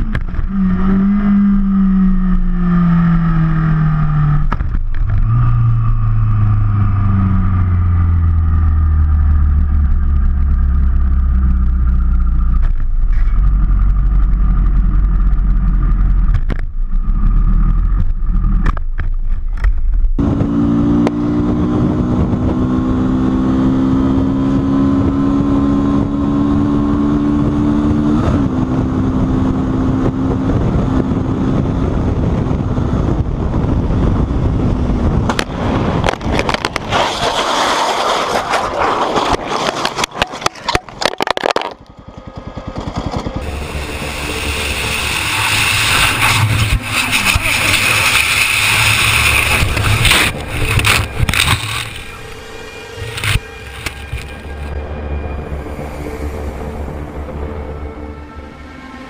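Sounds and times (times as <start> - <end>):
motorcycle engine accelerating: 0.0 - 59.0
motorcycle engine winding down: 39.9 - 58.0.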